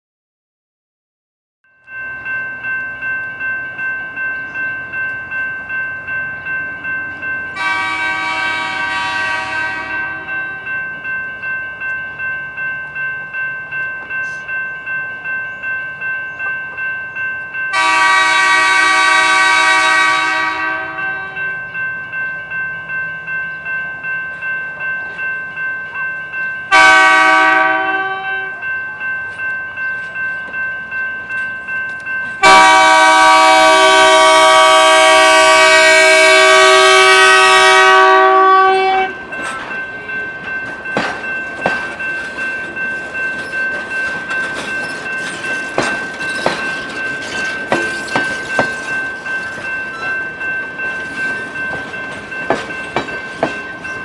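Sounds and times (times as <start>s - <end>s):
crossing bell ringing: 1.7s - 54.0s
train horn blasts: 7.6s - 10.6s, 17.7s - 21.5s, 26.7s - 28.6s, 32.4s - 39.2s.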